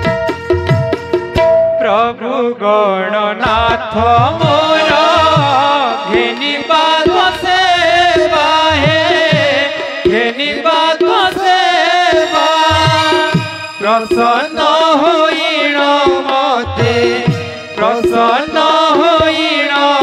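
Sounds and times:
person singing ornamented melody: 1.8 - 20.0
drum strokes: 3.4 - 20.0
sustained instrumental tones: 12.0 - 20.0.

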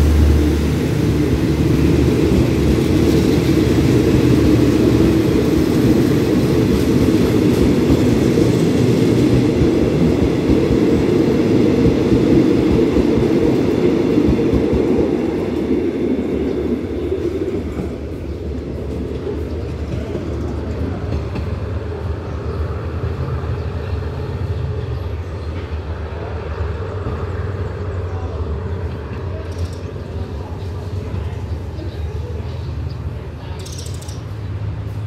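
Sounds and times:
low train rumble: 0.0 - 35.0
train carriages rolling on rails: 0.0 - 35.0.

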